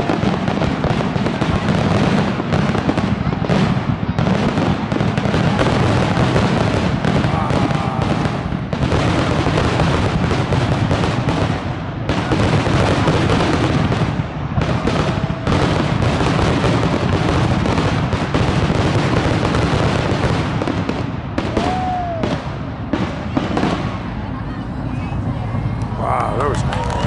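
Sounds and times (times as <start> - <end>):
fireworks booming and crackling: 0.0 - 27.0
firework whistle: 21.4 - 22.6.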